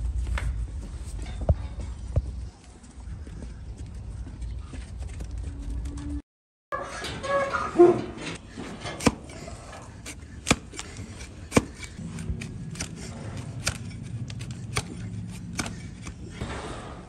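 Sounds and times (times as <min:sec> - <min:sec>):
knife cracking hoof horn: 0:08.8 - 0:16.4.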